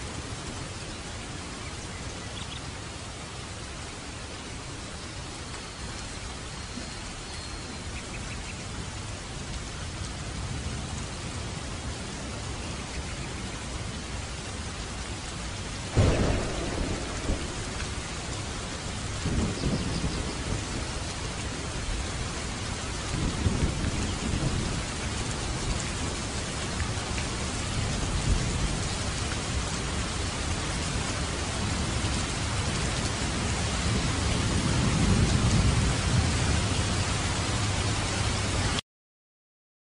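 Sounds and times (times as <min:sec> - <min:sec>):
heavy rain pouring: 0:00.0 - 0:38.8
thunder rumbling: 0:15.9 - 0:29.7, 0:31.6 - 0:37.8
thunder crack: 0:16.0 - 0:21.0.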